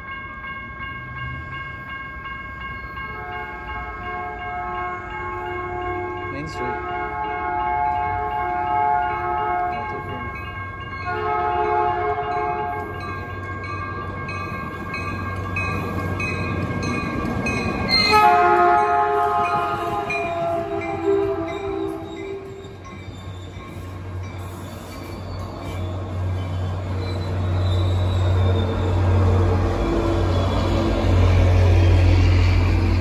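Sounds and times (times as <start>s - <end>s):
train rumble and wheel noise: 0.0s - 33.0s
train horn blasts: 3.1s - 10.2s, 11.0s - 13.0s, 17.9s - 22.7s.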